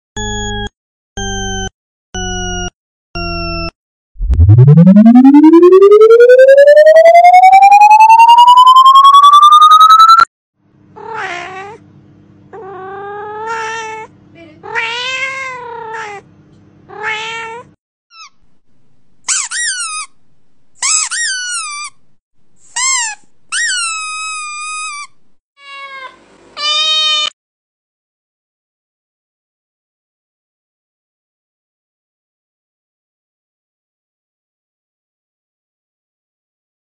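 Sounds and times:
electronic tone sweeping upward: 0:04.2 - 0:10.3
cat meowing: 0:11.0 - 0:11.8, 0:12.6 - 0:16.2, 0:16.9 - 0:17.8, 0:25.6 - 0:27.3.

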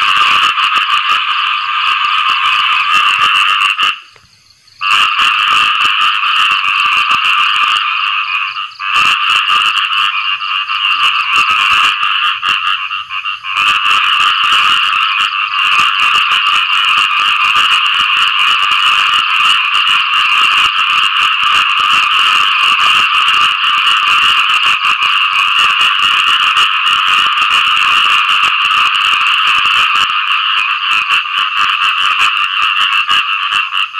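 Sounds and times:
frogs croaking chorus: 0:00.0 - 0:33.9.

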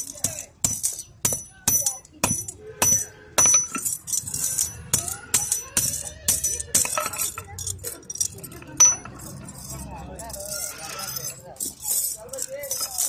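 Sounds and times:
hammer striking metal: 0:00.0 - 0:07.5, 0:08.8 - 0:09.8
chain rattling: 0:00.0 - 0:13.0.

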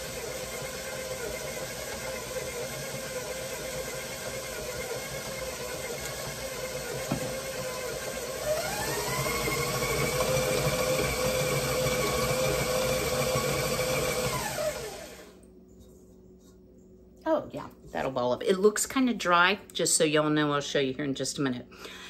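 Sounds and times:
electric stand mixer running: 0:00.0 - 0:15.4.

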